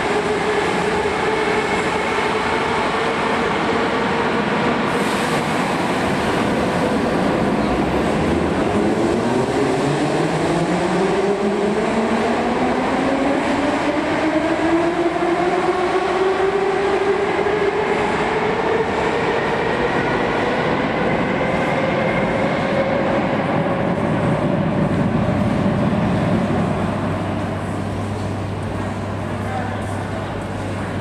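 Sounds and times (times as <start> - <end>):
running train noise: 0.0 - 31.0.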